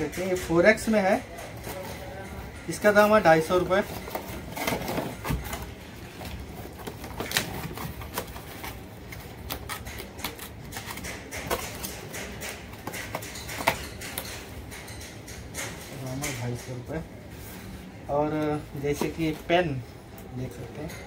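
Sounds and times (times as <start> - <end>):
cardboard boxes tapping and rustling: 2.8 - 14.4.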